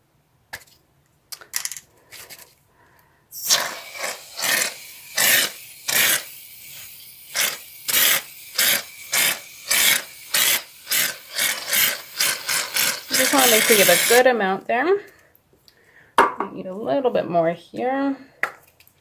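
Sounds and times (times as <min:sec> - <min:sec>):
aerosol can spraying foam: 0:03.3 - 0:14.2.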